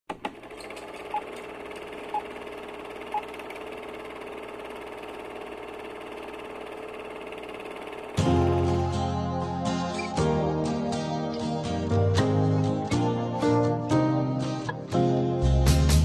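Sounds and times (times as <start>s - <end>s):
film projector whirring hum: 0.1s - 8.6s.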